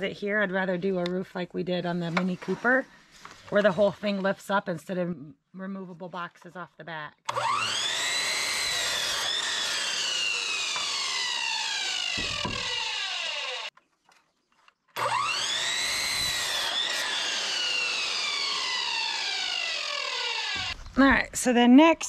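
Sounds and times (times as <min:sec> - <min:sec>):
saw motor whine: 0:07.3 - 0:13.7, 0:15.0 - 0:20.8.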